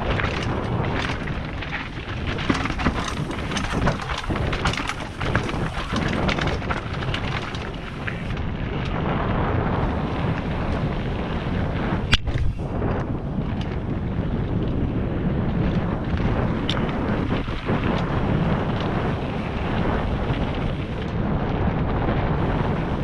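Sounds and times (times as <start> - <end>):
tyres crunching over gravel: 0.0 - 9.0
bike rattling and knocking: 0.0 - 23.0
wind on microphone: 0.0 - 23.0.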